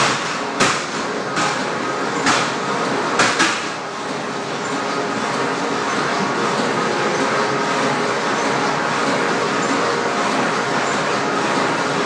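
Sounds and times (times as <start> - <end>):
sharp knocks: 0.0 - 1.6, 3.2 - 3.7
amusement ride mechanical rumbling: 0.0 - 12.0.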